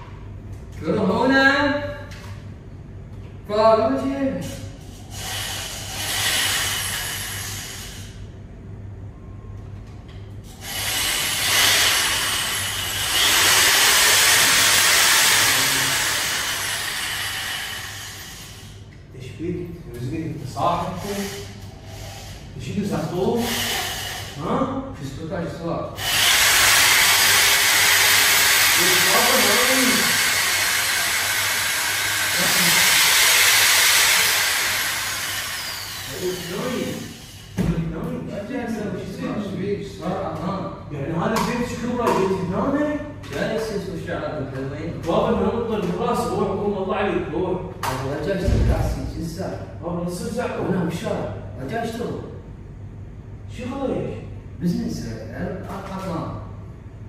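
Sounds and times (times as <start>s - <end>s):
handheld power tool running: 10.5s - 18.7s, 26.0s - 37.6s
hair dryer blowing: 10.6s - 18.6s, 26.0s - 37.6s
hair dryer winding down: 10.7s - 17.9s, 26.0s - 37.5s.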